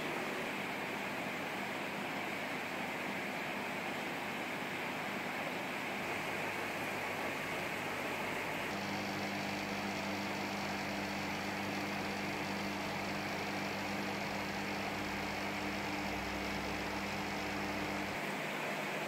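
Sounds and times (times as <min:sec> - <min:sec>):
aquarium filter pump hiss: 0:05.0 - 0:19.0
steady low hum: 0:08.0 - 0:18.2.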